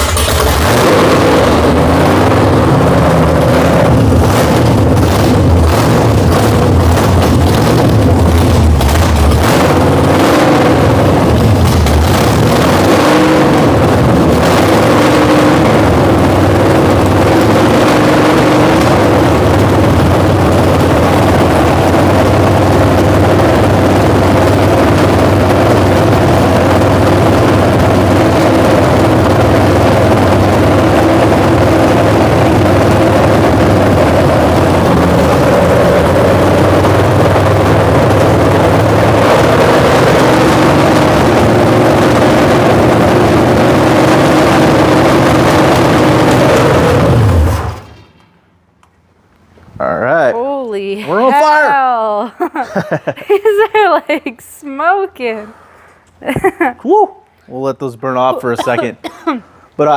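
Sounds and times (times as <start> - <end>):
loud engine through open headers: 0.0 - 48.0.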